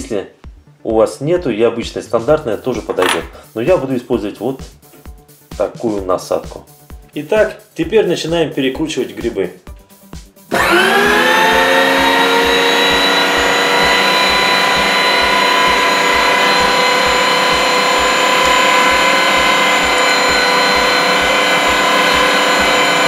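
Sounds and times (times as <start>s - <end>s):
meat grinder motor whine: 10.5s - 23.0s.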